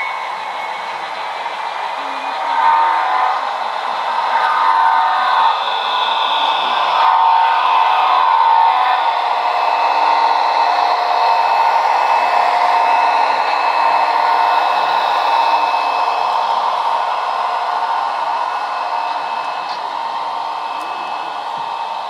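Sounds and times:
model train motor whirring: 0:00.0 - 0:22.0.

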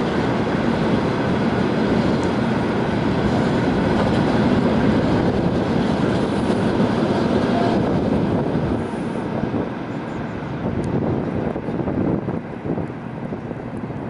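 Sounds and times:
freight train wheels on rails: 0:00.0 - 0:14.0.

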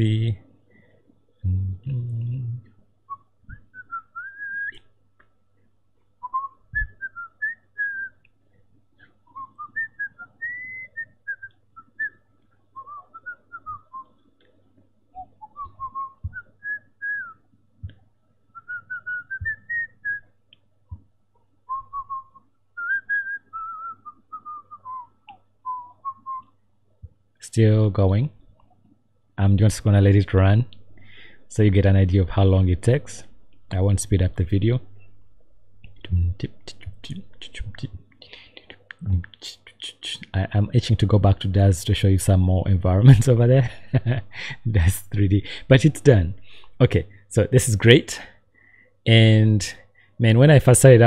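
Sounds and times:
person whistling a tune: 0:03.5 - 0:04.8, 0:06.2 - 0:08.1, 0:18.6 - 0:20.2, 0:21.7 - 0:25.1.

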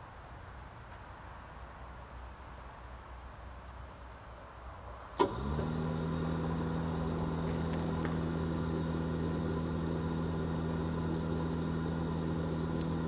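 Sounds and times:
electric blower humming: 0:05.2 - 0:13.0.

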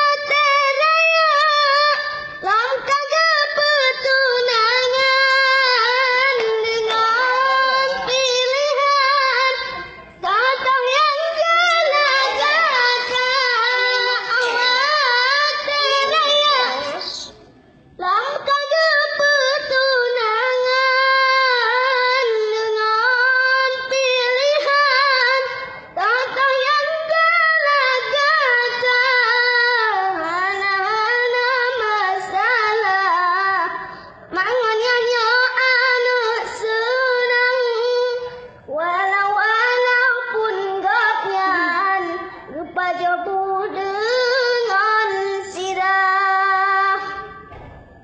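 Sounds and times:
boy singing solo: 0:00.0 - 0:17.3
boy singing high melody: 0:00.0 - 0:17.4, 0:18.0 - 0:47.5.

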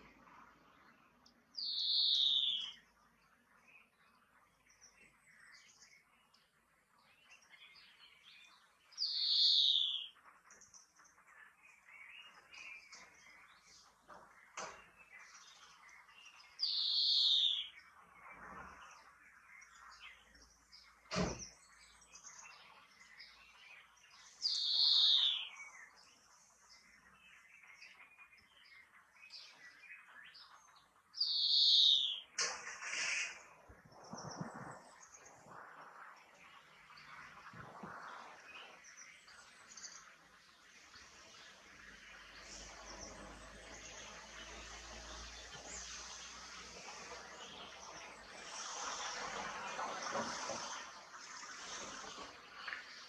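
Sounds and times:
faint high twittering: 0:00.0 - 0:53.0
finch wheezing call: 0:32.6 - 0:33.5.

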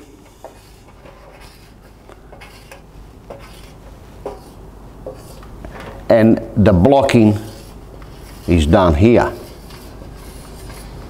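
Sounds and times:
marker scratching on metal: 0:00.0 - 0:05.4, 0:07.2 - 0:11.0.

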